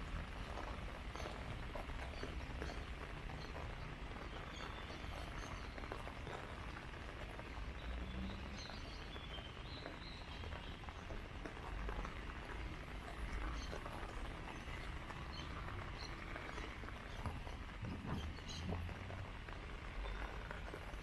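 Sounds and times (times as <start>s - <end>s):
footsteps on wet path: 0.0s - 21.0s
light rain hissing: 0.0s - 21.0s
birds chirping: 0.5s - 21.0s.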